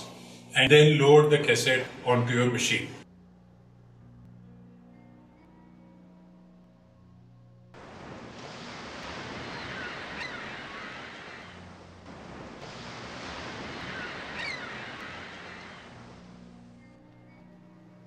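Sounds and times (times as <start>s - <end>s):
ocean waves washing in: 7.8s - 17.5s
short bird calls: 9.4s - 11.7s, 13.7s - 16.0s.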